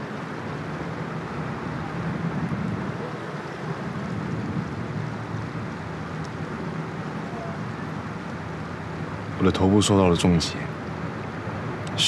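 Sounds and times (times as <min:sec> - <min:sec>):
outdoor background rumble and hiss: 0:00.0 - 0:12.0.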